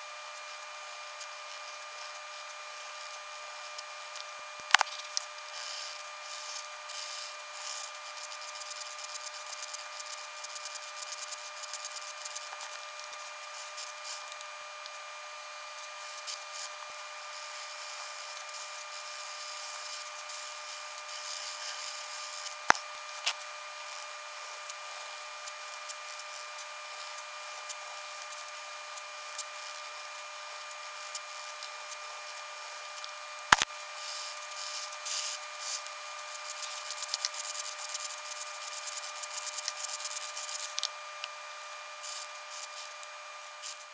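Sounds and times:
steady high-pitched hum: 0.0 - 43.9
pencil scratching on paper: 34.0 - 40.9.

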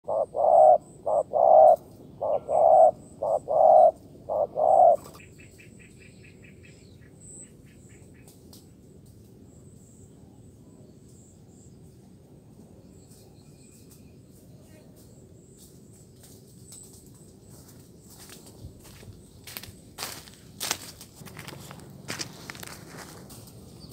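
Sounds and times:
dove cooing: 0.0 - 5.3.

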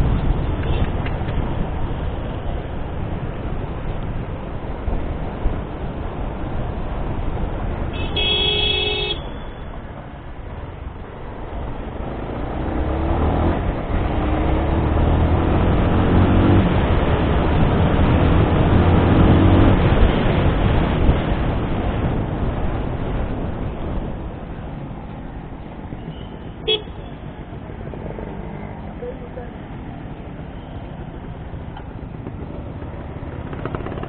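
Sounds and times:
wind and road noise: 0.0 - 34.0
vehicle horn: 7.9 - 9.6, 26.1 - 27.1
motorcycle engine accelerating: 11.9 - 20.1, 32.2 - 34.0.

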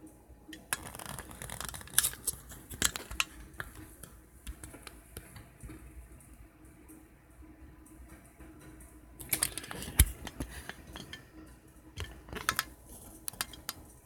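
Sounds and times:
phone handling clicks and rustling: 9.2 - 11.2, 12.0 - 13.8.

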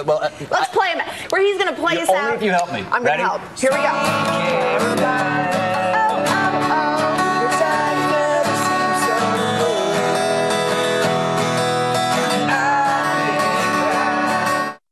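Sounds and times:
acoustic guitar strummed and picked: 3.6 - 14.8.

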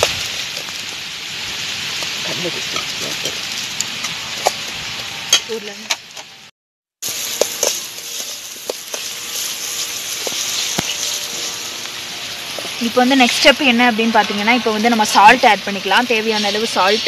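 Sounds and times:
food sizzling in a pan: 0.0 - 6.3, 7.0 - 17.0
metal spoon scraping a pan: 7.1 - 15.2.

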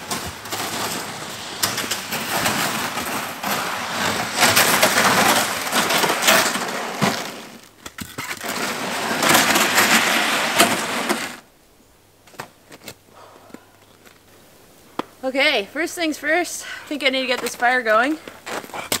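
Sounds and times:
plastic sled scraping over snow: 0.0 - 11.5
snow crust crackling: 0.0 - 11.5.

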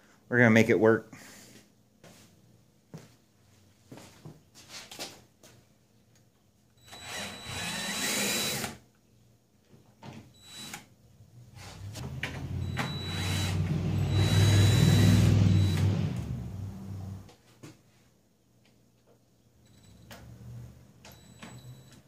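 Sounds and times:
cordless drill running: 6.8 - 8.8, 10.4 - 10.8, 12.6 - 16.0.

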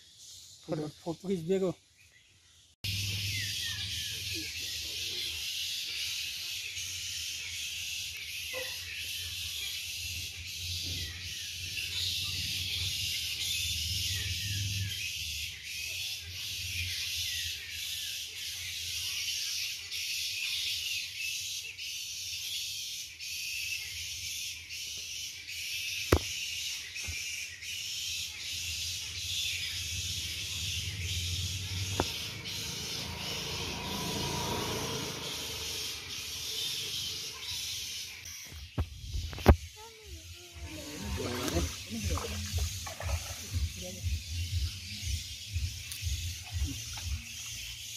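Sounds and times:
insects droning: 29.3 - 47.9.

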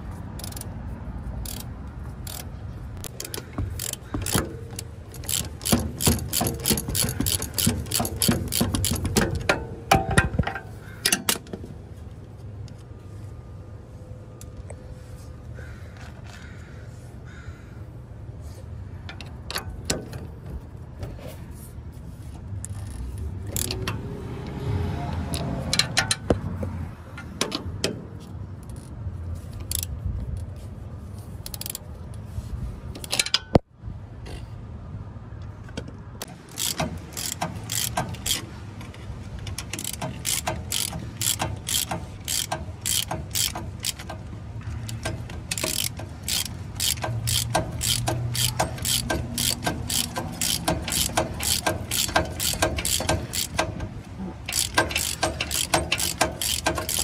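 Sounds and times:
ratcheting wrench clicking: 0.3 - 0.7, 1.4 - 11.6, 19.0 - 20.3, 22.6 - 24.5, 25.3 - 30.5, 31.4 - 31.9, 32.9 - 33.6, 36.2 - 57.0
tools clinking and scraping: 1.5 - 11.7, 36.2 - 57.0.

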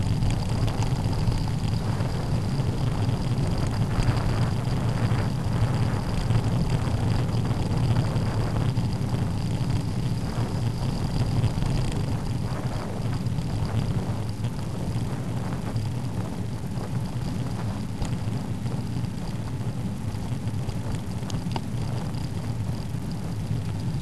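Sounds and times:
tyres rumbling on tarmac: 0.0 - 24.0
wind buffeting microphone: 0.0 - 24.0.

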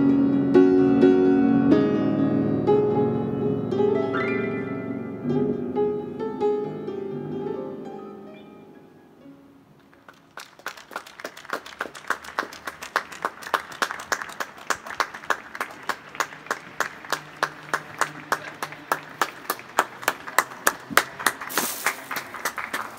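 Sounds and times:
hand clapping: 9.9 - 22.9.

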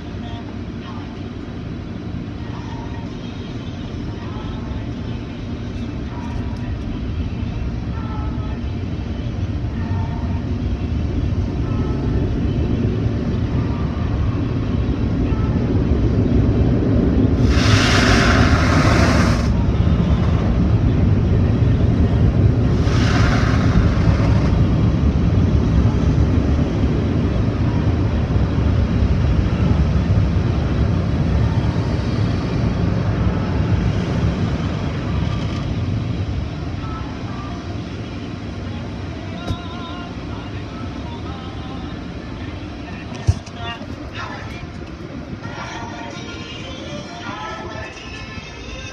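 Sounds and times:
car wash machinery rumbling: 0.0 - 48.9
high-pressure water spray hissing: 17.4 - 19.6, 22.8 - 24.2.

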